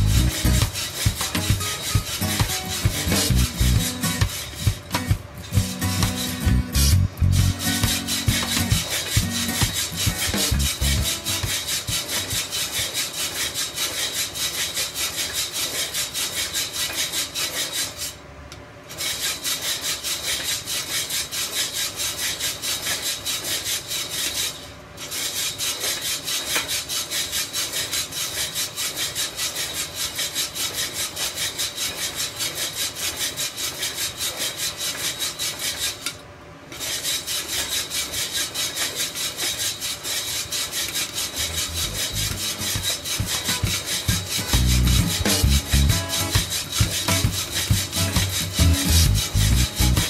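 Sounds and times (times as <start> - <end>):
coffee beans rattling in drum roaster: 0.0 - 14.0, 41.0 - 50.0.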